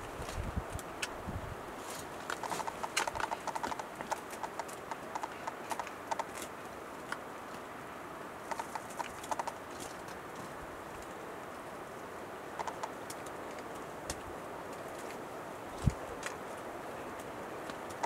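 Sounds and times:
bird dry clicking notes: 0:02.3 - 0:06.4, 0:08.5 - 0:09.6, 0:12.6 - 0:14.2.

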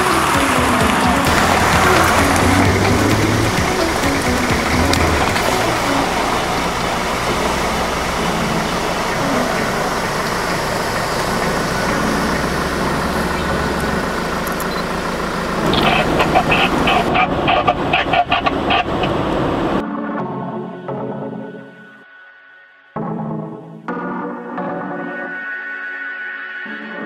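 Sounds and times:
water and mud splashing: 0:00.0 - 0:14.8
off-road vehicle engines running: 0:00.0 - 0:19.8.

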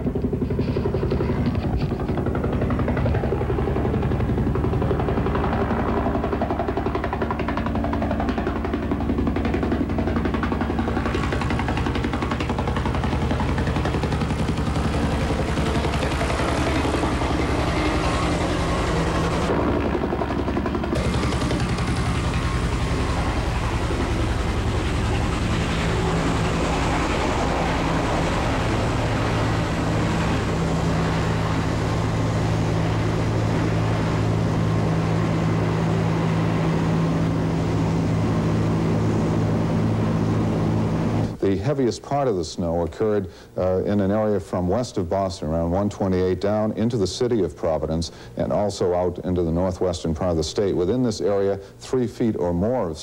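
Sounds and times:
deep drone: 0:00.0 - 0:41.6
helicopter engine noise: 0:00.0 - 0:53.0
helicopter rotor blades beating: 0:00.0 - 0:53.0.

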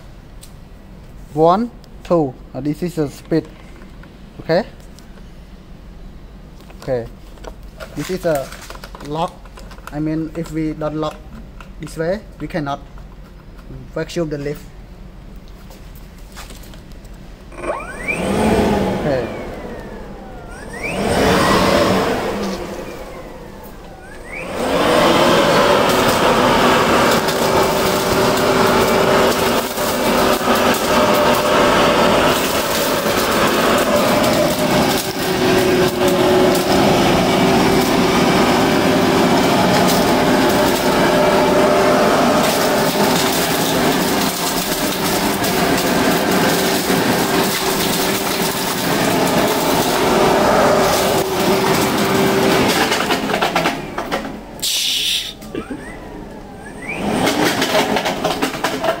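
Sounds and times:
blower-vacuum whining: 0:17.5 - 0:59.0
leaves clicking up a tube: 0:25.0 - 0:55.2.

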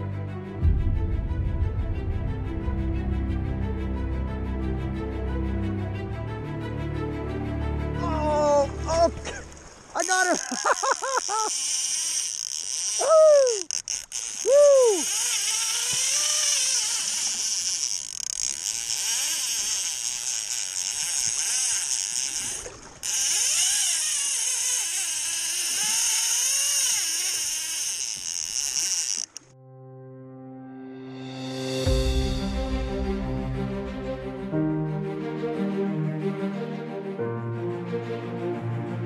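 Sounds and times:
rushing river water: 0:07.9 - 0:29.4
fishing reel ratchet buzzing: 0:10.0 - 0:29.5.

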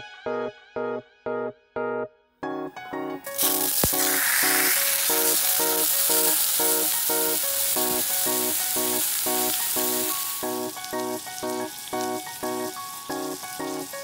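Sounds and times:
background music with a beat: 0:00.3 - 0:14.0
meat sizzling in a frying pan: 0:03.3 - 0:14.0.

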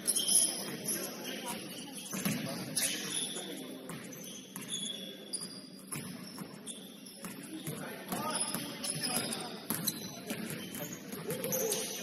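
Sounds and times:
sneakers squeaking on floor: 0:00.0 - 0:12.0
basketball bouncing: 0:08.1 - 0:11.5.

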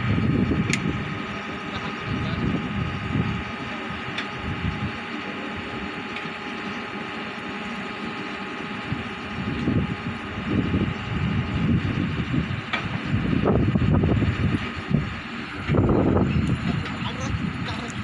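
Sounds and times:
drilling rig engine drone: 0:00.0 - 0:18.0
low rumbling surges: 0:08.7 - 0:18.0.

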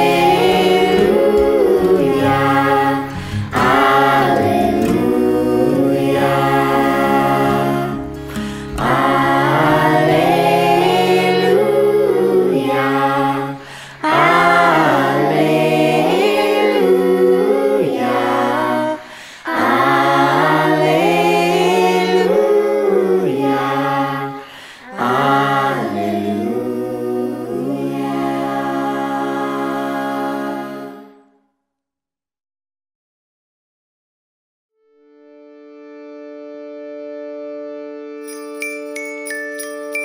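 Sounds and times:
children's choir singing: 0:00.0 - 0:31.3.

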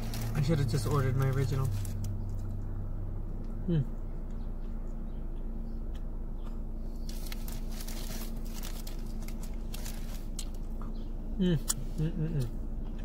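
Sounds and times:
paper wrapper rustling: 0:00.0 - 0:02.1, 0:07.1 - 0:10.7
low hum inside car: 0:00.0 - 0:13.0.

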